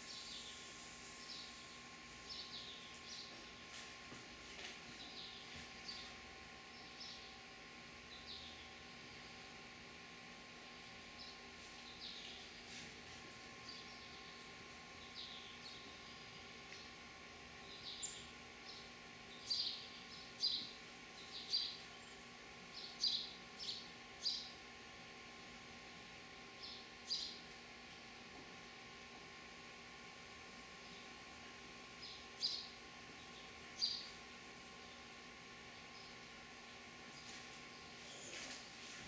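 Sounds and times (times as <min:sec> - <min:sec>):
sparrows chirping: 0:00.0 - 0:03.9, 0:04.5 - 0:09.4, 0:10.8 - 0:24.6, 0:26.5 - 0:27.6, 0:31.8 - 0:38.7.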